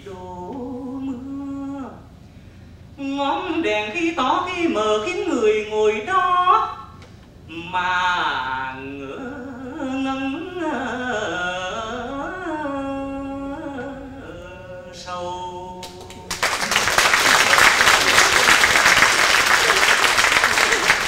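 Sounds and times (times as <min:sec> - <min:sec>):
man singing: 0:07.5 - 0:16.4
audience applause: 0:16.3 - 0:21.0.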